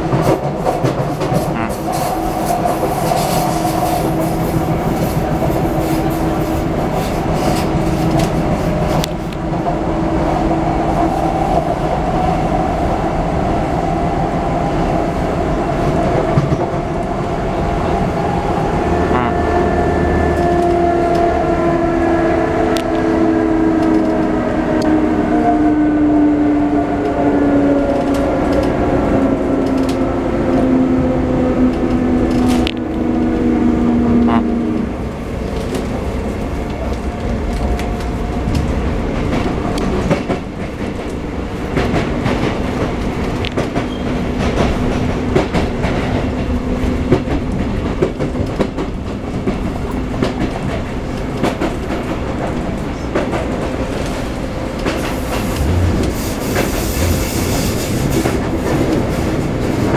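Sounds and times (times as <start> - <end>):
train wheels rumbling on rail: 0.0 - 59.9
rail-joint clicks: 29.6 - 30.0, 35.5 - 59.9
train motor whine: 54.8 - 58.5.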